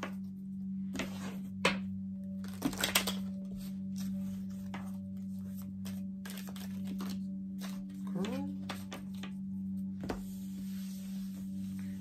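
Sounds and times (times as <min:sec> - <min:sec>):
steady low hum: 0:00.0 - 0:12.0
cards clicking and rustling: 0:02.4 - 0:03.3, 0:05.8 - 0:09.3.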